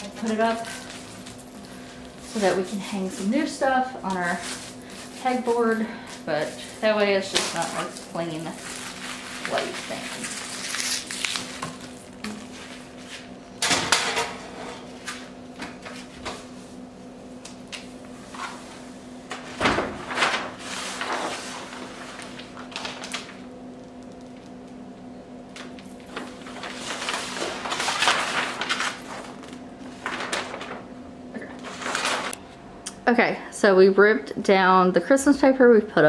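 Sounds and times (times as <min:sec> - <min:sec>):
wrapping paper rustling: 0:00.0 - 0:13.4, 0:19.9 - 0:24.8, 0:25.5 - 0:32.4.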